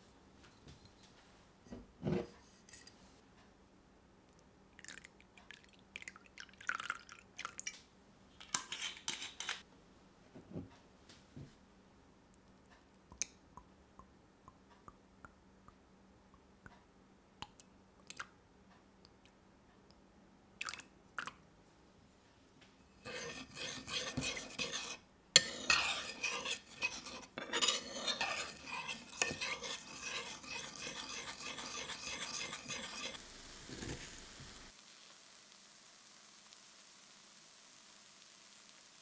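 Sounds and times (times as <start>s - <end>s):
metal spoon stirring in a bowl: 8.4s - 9.6s, 22.9s - 33.2s.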